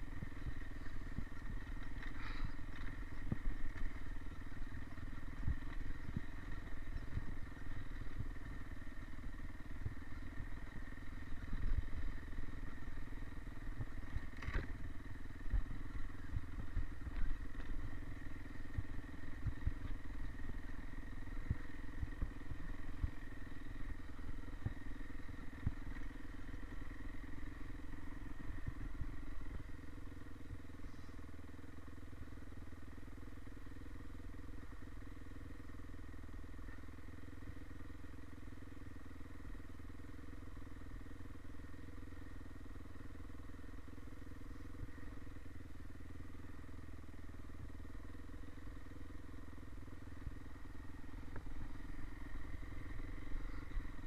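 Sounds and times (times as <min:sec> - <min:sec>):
bike rattling over bumps: 0:00.0 - 0:30.8
dirt bike engine running: 0:00.0 - 0:54.0.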